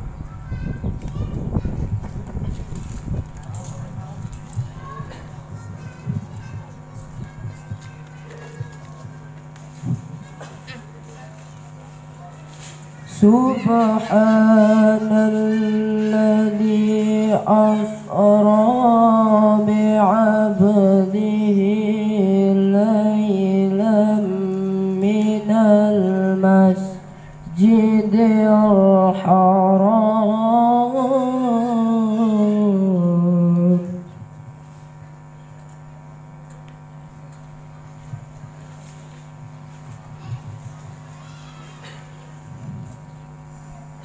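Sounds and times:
boy chanting over loudspeaker: 0:00.0 - 0:34.6, 0:38.0 - 0:43.0
sound system hum: 0:00.0 - 0:44.0.

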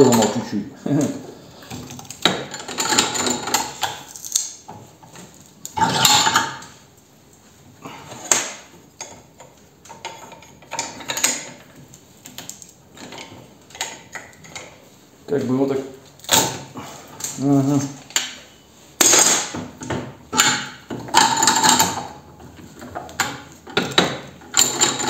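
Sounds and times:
steel tools clinking and scraping: 0:01.6 - 0:04.4, 0:20.3 - 0:25.0.

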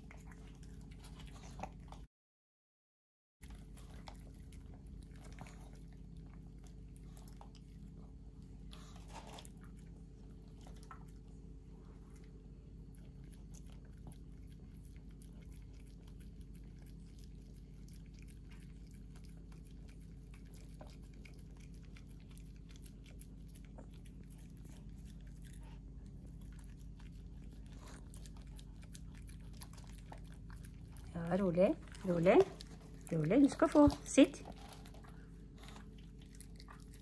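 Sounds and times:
dog licking and smacking: 0:03.4 - 0:37.0.

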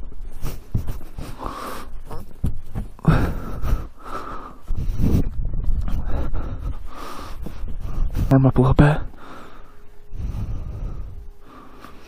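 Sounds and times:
glove brushing snow off plastic: 0:00.3 - 0:03.0.

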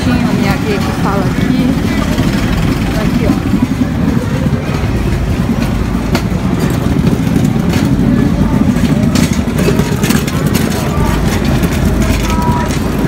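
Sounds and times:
busy pedestrian street noise: 0:00.0 - 0:13.0
low microphone rumble: 0:00.0 - 0:13.0.

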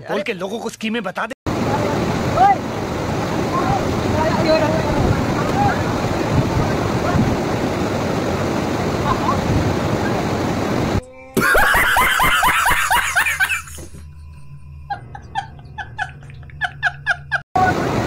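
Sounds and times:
waterfall rushing: 0:01.5 - 0:11.0
rapid laughter: 0:11.4 - 0:14.0, 0:14.9 - 0:17.4.

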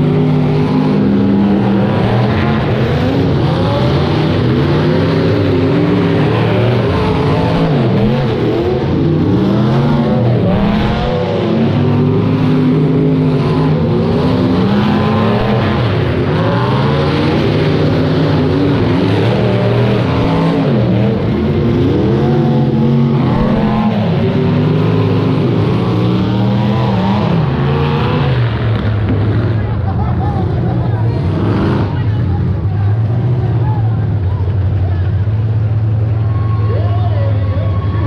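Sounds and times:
car engines revving together: 0:00.0 - 0:36.1.

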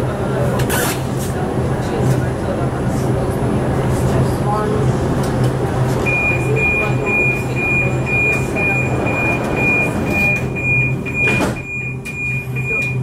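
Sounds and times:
door warning beeps: 0:06.0 - 0:13.0
train doors shutting knock: 0:08.3 - 0:13.0.

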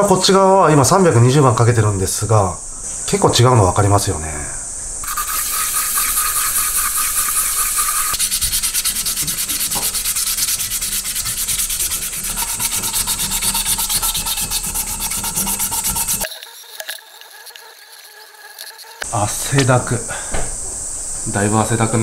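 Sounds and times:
sandpaper scrubbing metal cup: 0:05.0 - 0:19.0.

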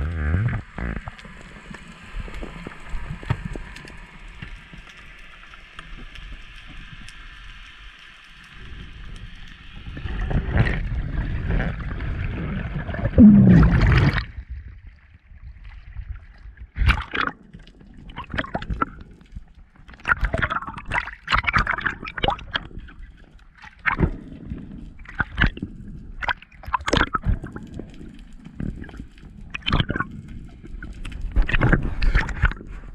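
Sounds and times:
water sloshing and gurgling: 0:08.4 - 0:32.9
splashes: 0:10.4 - 0:14.4, 0:16.7 - 0:17.4, 0:20.0 - 0:22.7.

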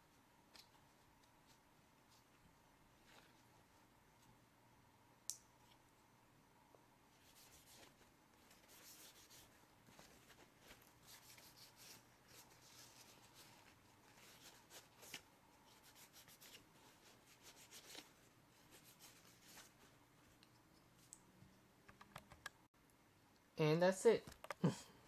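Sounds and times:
paper towel rubbing: 0:07.2 - 0:20.0.

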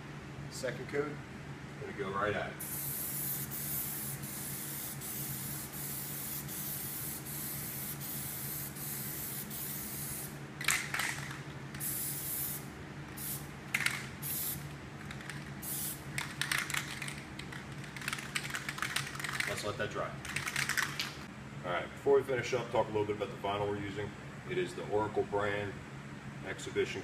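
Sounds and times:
aerosol can spraying hiss: 0:02.6 - 0:10.3, 0:11.8 - 0:13.4, 0:14.2 - 0:14.6, 0:15.6 - 0:16.0.

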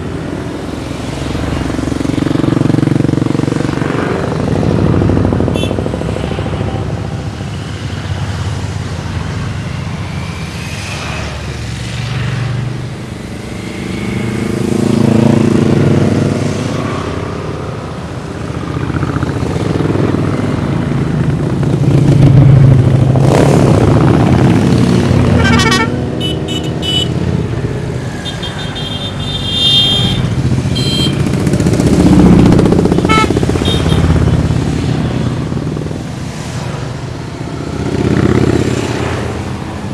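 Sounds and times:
motorcycles riding past: 0:00.0 - 0:39.9
motorcycle horn toots: 0:05.5 - 0:05.8, 0:25.4 - 0:27.2, 0:28.4 - 0:31.3, 0:33.0 - 0:34.1.

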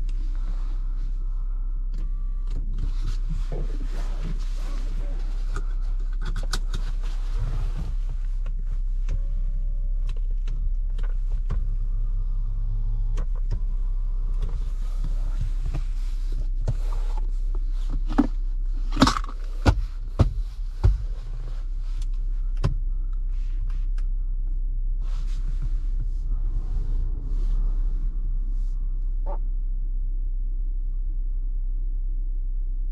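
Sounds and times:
car engine and road noise: 0:00.0 - 0:32.9.

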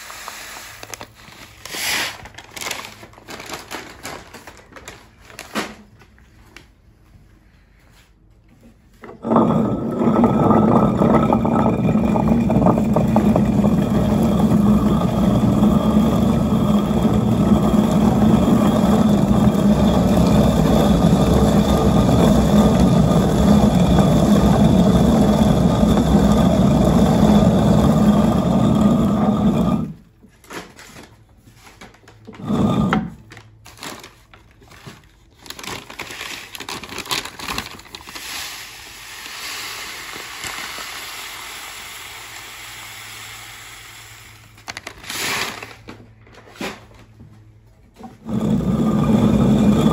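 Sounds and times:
hand mill stones grinding grain: 0:09.0 - 0:30.2, 0:32.3 - 0:33.3, 0:48.0 - 0:49.9.

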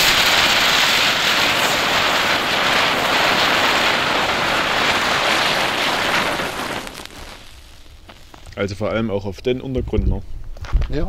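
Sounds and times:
firework spinners hissing: 0:00.0 - 0:08.8.

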